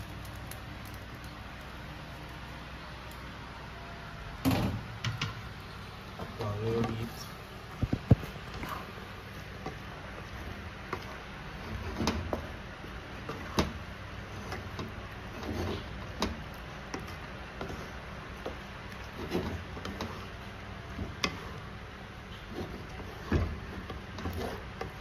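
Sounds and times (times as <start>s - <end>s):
spatula scraping and knocking pan: 6.2s - 25.0s.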